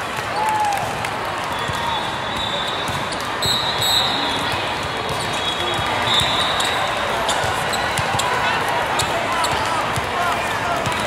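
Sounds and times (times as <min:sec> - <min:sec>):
sneaker squeaks: 0:01.8 - 0:09.7.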